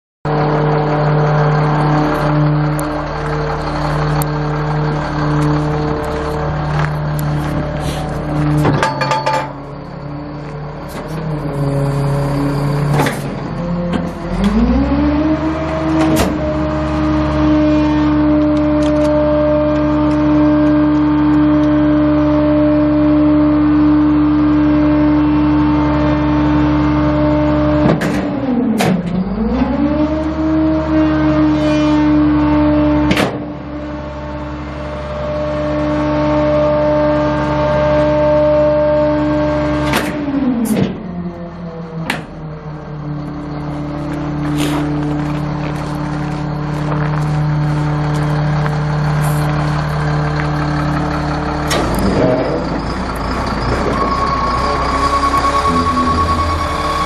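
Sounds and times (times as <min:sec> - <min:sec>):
diesel truck engine: 0:00.2 - 0:57.0
sharp clanks: 0:06.8 - 0:09.8.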